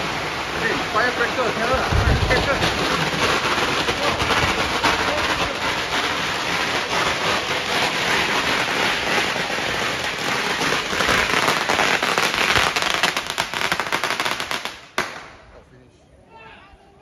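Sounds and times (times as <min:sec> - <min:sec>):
firecrackers crackling: 0:00.0 - 0:15.7.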